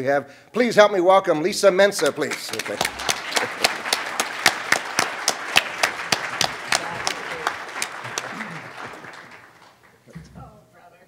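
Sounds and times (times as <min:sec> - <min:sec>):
audience applauding: 0:02.0 - 0:10.2.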